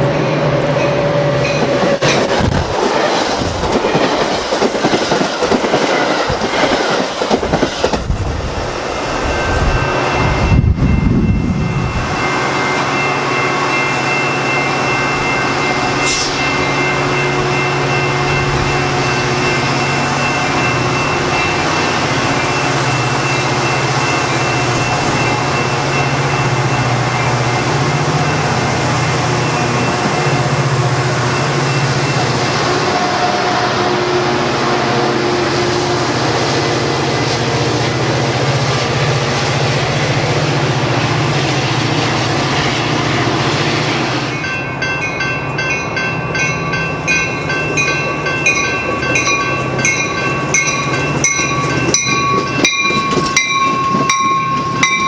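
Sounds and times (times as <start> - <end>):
rail clatter: 0.0 - 12.3, 36.4 - 55.0
diesel locomotive passing: 0.0 - 55.0.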